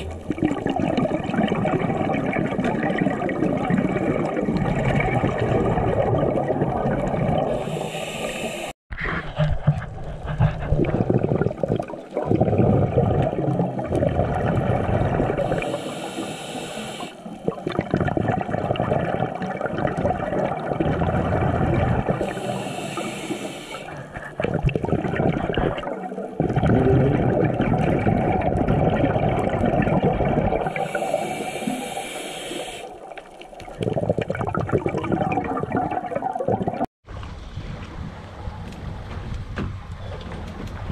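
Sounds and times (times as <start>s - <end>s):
exhaled bubbles gurgling: 0.0s - 36.9s
regulator inhalation hiss: 7.6s - 8.8s, 15.5s - 17.3s, 22.2s - 24.0s, 30.7s - 33.0s.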